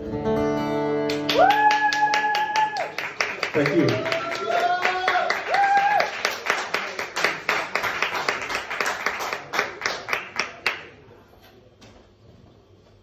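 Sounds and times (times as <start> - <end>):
audience clapping: 1.0 - 11.1.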